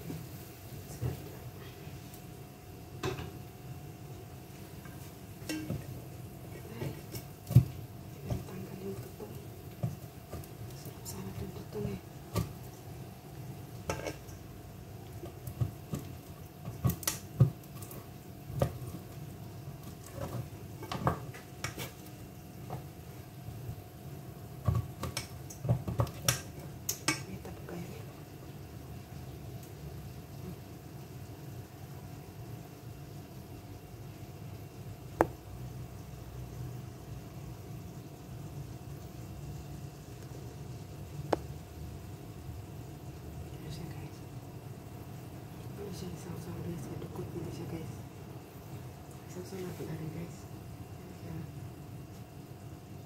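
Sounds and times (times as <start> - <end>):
utensil scraping metal pot: 13.8 - 14.3.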